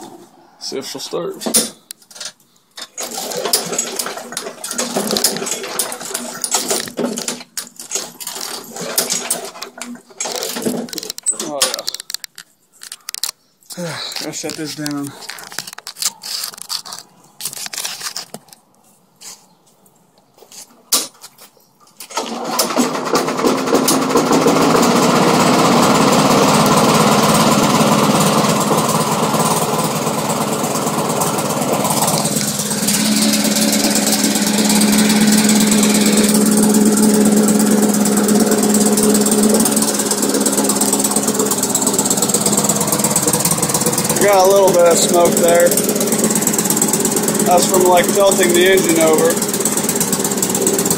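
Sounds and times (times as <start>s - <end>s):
lawn mower engine idling: 3.0s - 10.9s, 22.2s - 50.9s.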